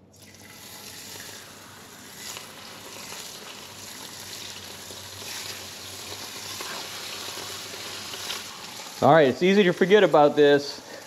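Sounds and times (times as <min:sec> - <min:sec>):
fish fillets sizzling in skillet: 0:00.6 - 0:09.1.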